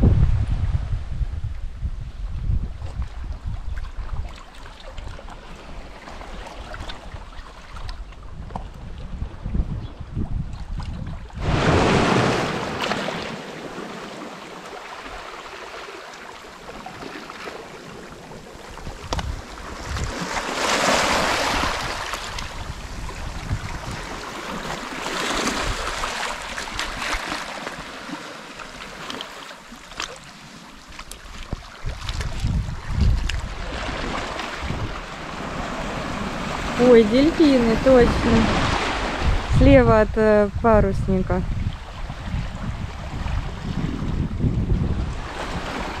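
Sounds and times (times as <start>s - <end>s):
wind buffeting microphone: 0.0s - 13.8s, 18.1s - 27.8s, 31.0s - 46.0s
sea waves washing over rocks: 11.4s - 41.4s, 44.8s - 46.0s.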